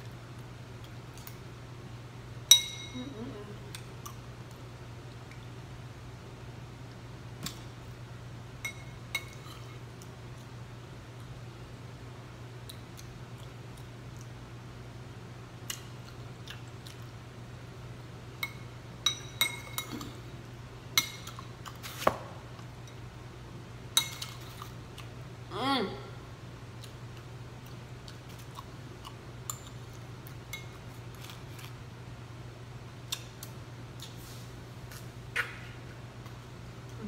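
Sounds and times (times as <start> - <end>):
low steady hum: 0.0 - 37.0
spoon clinking on ceramic bowl: 2.5 - 3.0, 8.6 - 9.6, 18.4 - 20.0
eating sounds: 15.6 - 17.2
person voicing mm: 25.5 - 26.2.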